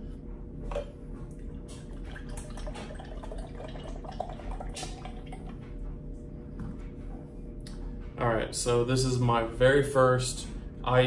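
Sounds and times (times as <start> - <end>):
liquid pouring into glass mug: 1.7 - 5.6.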